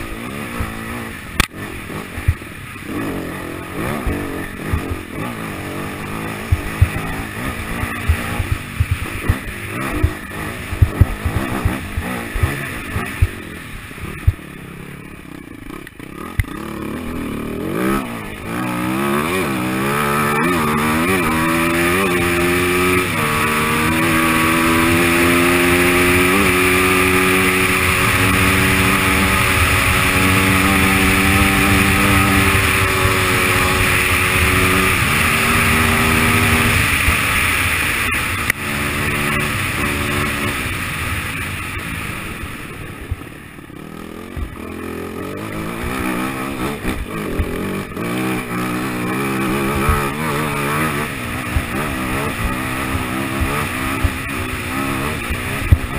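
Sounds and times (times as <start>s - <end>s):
motorcycle engine under load: 0.0s - 55.9s
wind: 0.0s - 55.9s.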